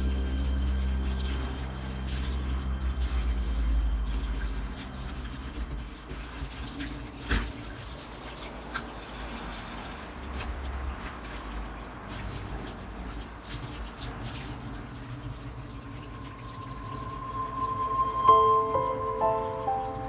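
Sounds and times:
sponge scrubbing sink: 0.0 - 15.3
tap water running into metal sink: 0.0 - 20.0.

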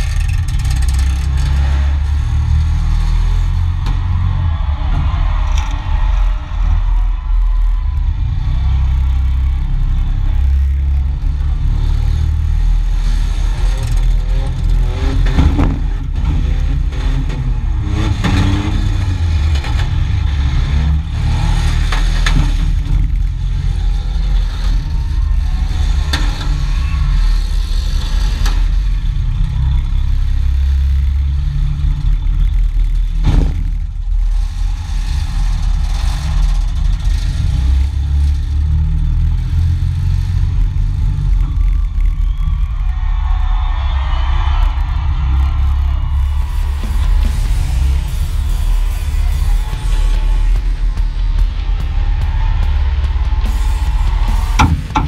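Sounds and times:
car engine revving: 0.0 - 55.0
sharp knocks: 54.4 - 55.0.

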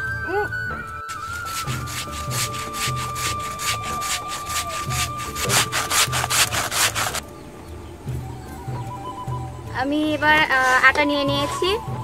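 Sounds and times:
metal grater rasping: 1.1 - 7.2.

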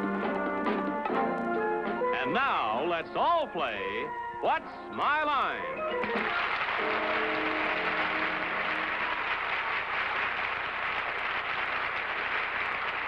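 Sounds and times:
theme music held notes: 0.0 - 9.3
studio audience applauding: 5.9 - 13.0.

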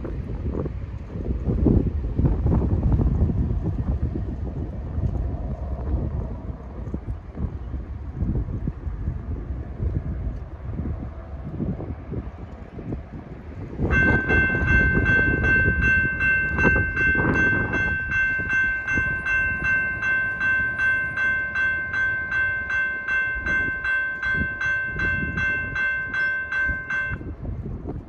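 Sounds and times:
low rumble: 0.0 - 28.0
crossing warning bell ringing: 13.8 - 27.6.

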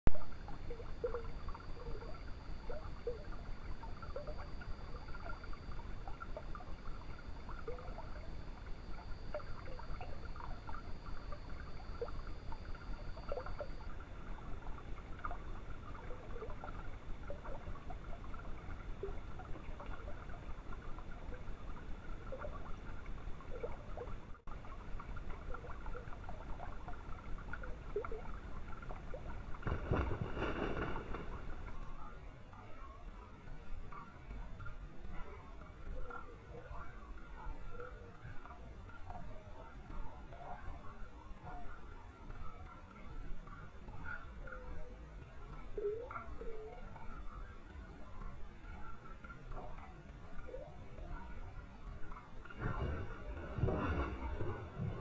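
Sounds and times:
faint high whine: 0.1 - 55.0
low forest rush: 52.5 - 55.0.

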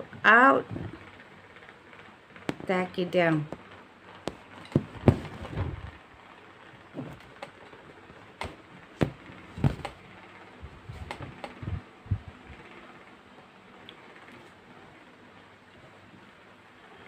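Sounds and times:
soft thumps: 4.2 - 6.0, 8.4 - 10.0.

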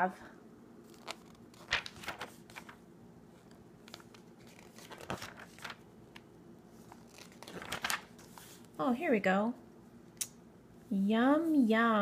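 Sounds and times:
glossy pages rustling: 0.8 - 8.8.

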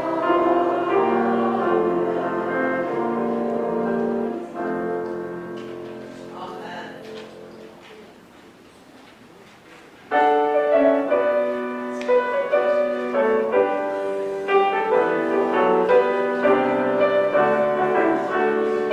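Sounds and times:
piano chords and notes: 0.0 - 7.7, 10.1 - 18.9.

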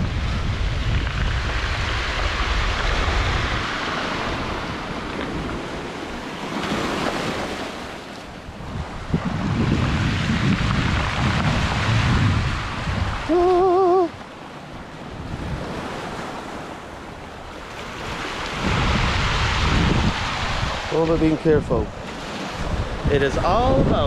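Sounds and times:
waves washing over pebbles: 0.0 - 24.0
wind buffeting microphone: 0.0 - 24.0.

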